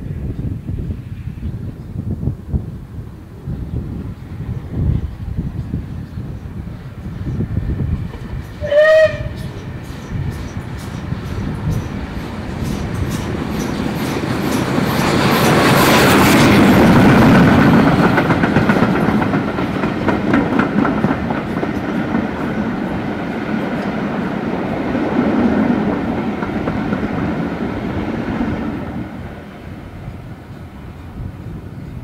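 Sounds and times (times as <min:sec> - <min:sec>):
steam locomotive exhaust beats: 0:04.9 - 0:32.0
train wheels clicking over rails: 0:07.8 - 0:29.8.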